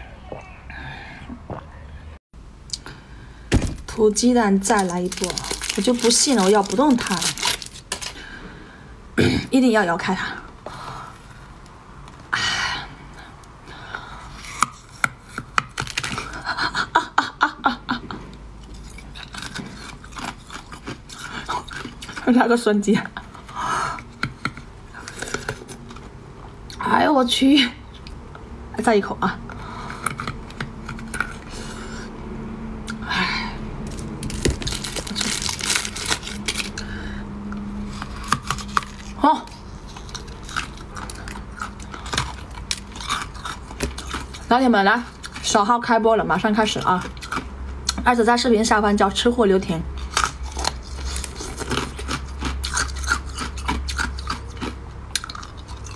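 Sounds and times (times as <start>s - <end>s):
aluminium foil crinkling: 3.7s - 8.2s, 15.7s - 16.4s, 33.9s - 36.9s
teeth crunching ice: 3.9s - 8.2s, 14.4s - 16.6s, 18.6s - 22.6s, 29.8s - 32.1s, 33.8s - 37.0s, 37.9s - 45.7s, 46.6s - 48.0s, 50.0s - 55.9s
chewing frozen food: 4.5s - 8.3s, 14.0s - 16.8s, 18.6s - 26.8s, 29.6s - 32.1s, 33.8s - 48.1s, 49.9s - 55.9s
strained breath: 36.8s - 37.5s.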